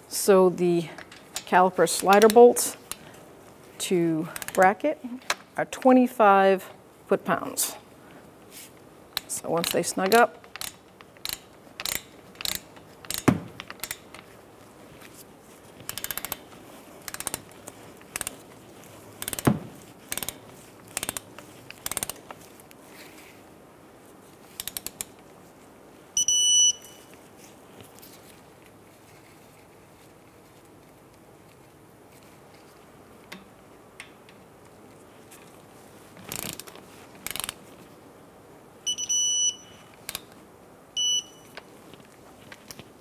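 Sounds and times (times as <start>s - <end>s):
hand ratchet clicking: 4.3s - 4.6s, 9.1s - 14.3s, 15.8s - 18.4s, 19.2s - 19.5s, 20.1s - 22.2s, 24.5s - 25.1s, 36.3s - 37.6s
torque wrench beep: 26.2s - 27.0s, 38.9s - 39.9s, 41.0s - 41.5s.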